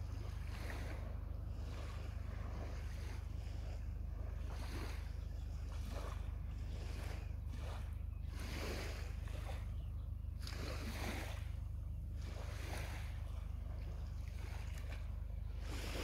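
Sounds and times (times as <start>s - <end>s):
waves lapping on sandy shore: 0.0s - 16.0s.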